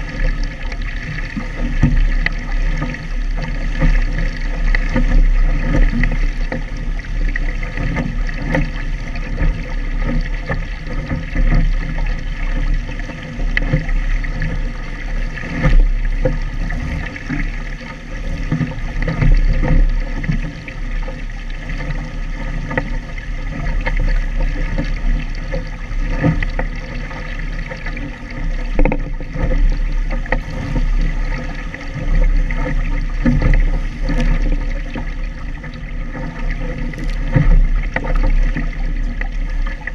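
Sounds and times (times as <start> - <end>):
water rushing along boat hull: 0.0 - 39.9.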